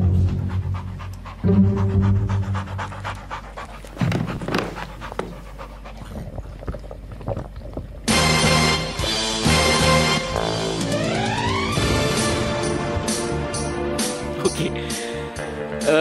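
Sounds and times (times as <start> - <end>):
cartoon dog panting: 0.0 - 8.1
loud music: 8.1 - 16.0.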